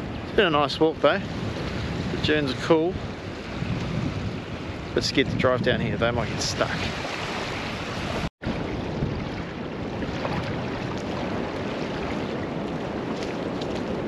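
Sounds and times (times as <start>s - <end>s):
wind blowing across microphone: 0.0s - 14.0s
small waves washing: 6.2s - 14.0s.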